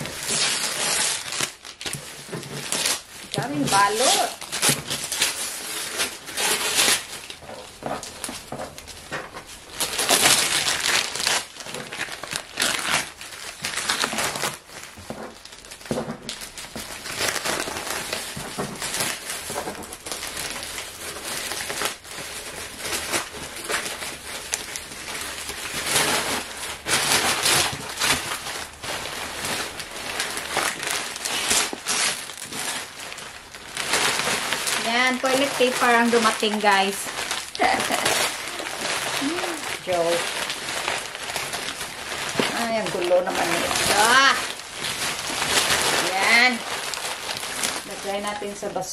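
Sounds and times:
plastic wrapping crinkling and tearing: 0.0 - 48.9.

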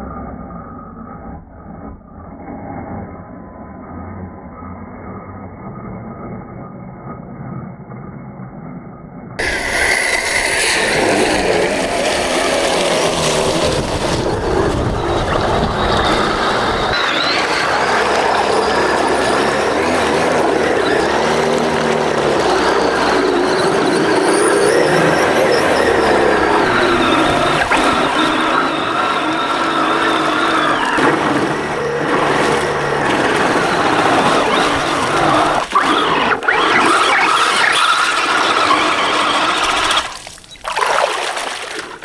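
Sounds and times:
rc truck electric motor whining: 9.4 - 40.2
muddy water splashing: 9.4 - 42.0.

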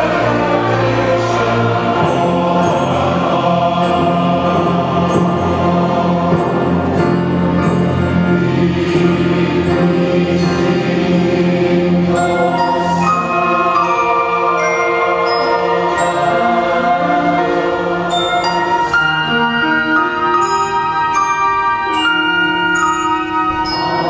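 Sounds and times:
string orchestra with flutes: 0.0 - 4.2
choir singing sacred anthem: 0.0 - 24.0.

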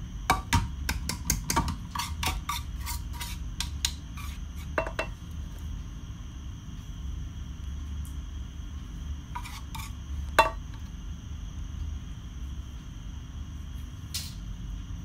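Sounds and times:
spoon scraping a frying pan: 1.9 - 5.2, 9.3 - 10.6.

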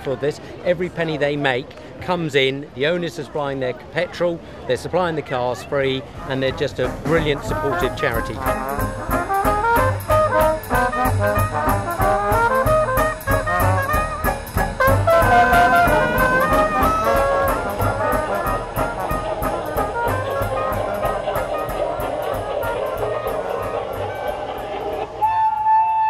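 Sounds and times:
upbeat jazzy brass music: 6.2 - 26.0
steady ticking beat: 6.4 - 26.0.

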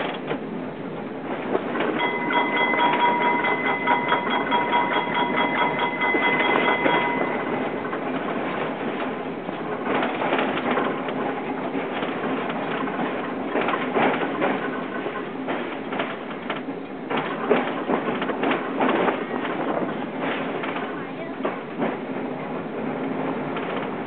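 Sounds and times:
tram clattering on rails: 0.0 - 24.0
rapidly struck bell: 2.0 - 7.8.

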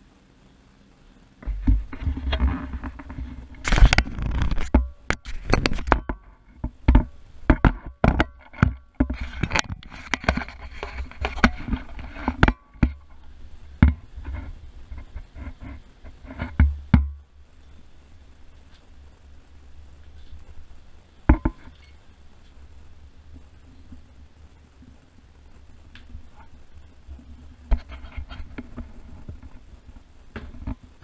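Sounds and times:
microphone handling rumble: 1.4 - 17.2
objects clicking and knocking: 21.3 - 22.6.

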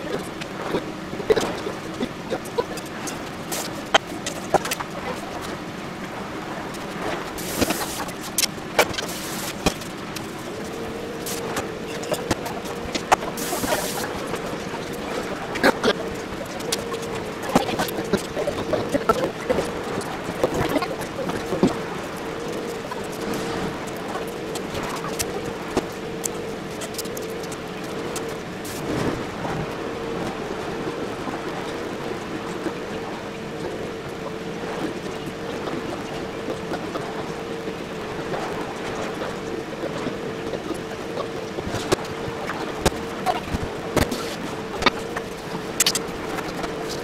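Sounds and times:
faint steady hum: 0.0 - 47.0
background hiss: 7.3 - 19.4.

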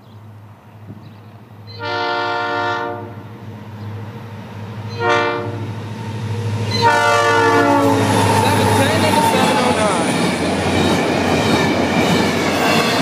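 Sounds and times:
train cars rolling past: 0.1 - 13.0
locomotive air horn: 1.7 - 3.2, 4.9 - 5.6, 6.7 - 8.2.

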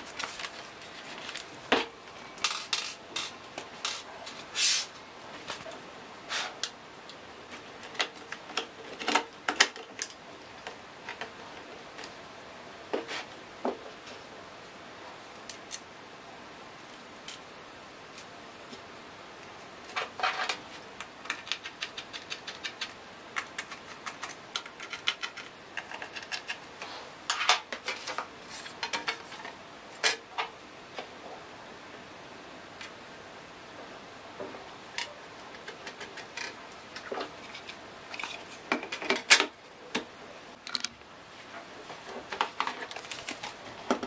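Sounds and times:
laptop parts clicking and clattering: 0.0 - 4.0, 7.7 - 11.4, 19.9 - 26.7, 27.3 - 30.2, 35.0 - 41.0.

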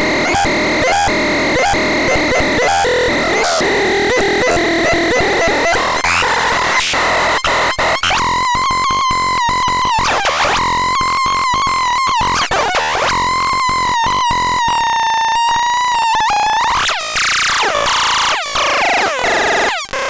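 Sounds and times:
pulsing buzzy synthesizer tone: 0.0 - 20.0
squealing synthesizer warble: 0.1 - 13.3.

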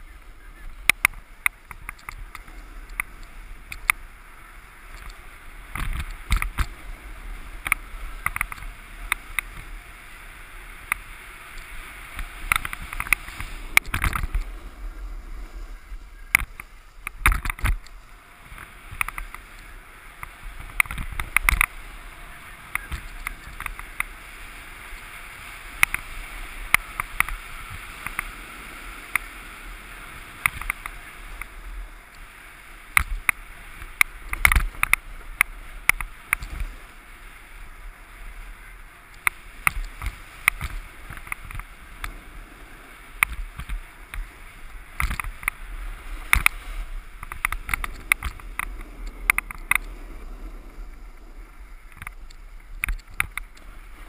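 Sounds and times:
snowboard scraping on snow: 0.0 - 54.0
sharp clicks and knocks: 16.3 - 19.4, 20.2 - 21.8, 45.0 - 45.6, 46.2 - 46.6, 47.2 - 49.9, 51.9 - 53.7.

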